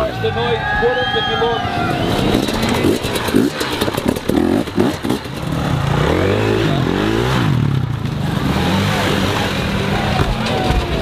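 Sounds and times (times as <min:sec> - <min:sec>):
dirt bike engine revving: 0:01.6 - 0:11.0.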